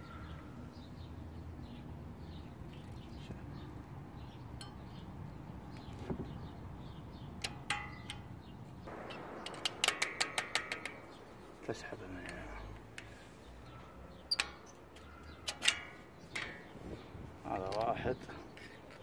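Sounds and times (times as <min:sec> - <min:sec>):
sharp metallic clicks: 0:07.4 - 0:13.2.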